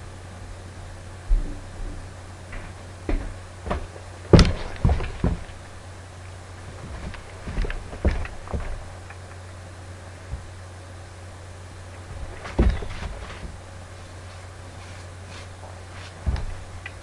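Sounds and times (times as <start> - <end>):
steady low hum: 0.0 - 17.0
person stepping close to microphone: 1.3 - 5.8, 6.5 - 9.5, 12.0 - 17.0.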